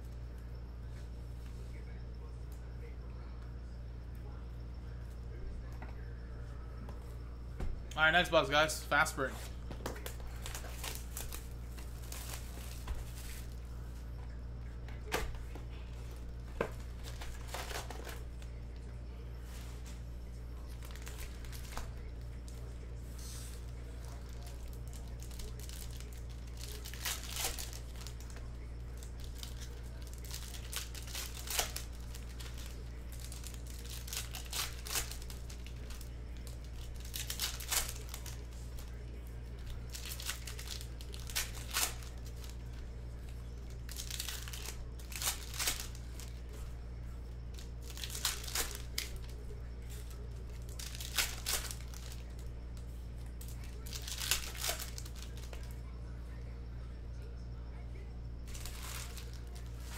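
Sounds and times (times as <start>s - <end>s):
low electrical hum: 0.0s - 59.9s
foil wrappers tearing and crinkling: 10.0s - 13.7s, 16.6s - 18.6s, 20.6s - 46.6s, 47.5s - 52.5s, 53.4s - 55.7s, 58.5s - 59.9s.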